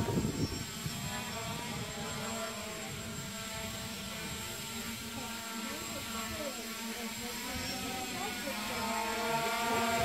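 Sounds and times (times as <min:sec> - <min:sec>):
drone propellers humming: 0:00.0 - 0:10.0
faint voices: 0:04.8 - 0:10.0.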